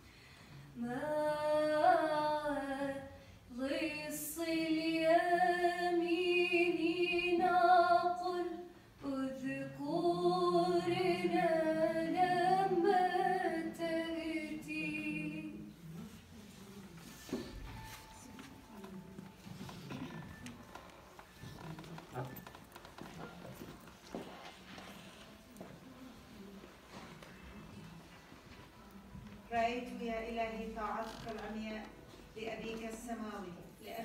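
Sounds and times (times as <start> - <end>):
woman singing a hymn: 0.8 - 15.8, 29.6 - 34.0.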